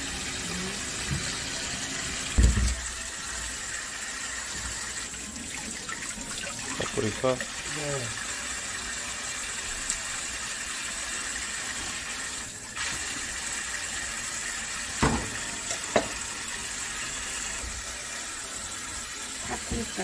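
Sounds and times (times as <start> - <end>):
tap running into steel bowl: 15.0 - 16.2.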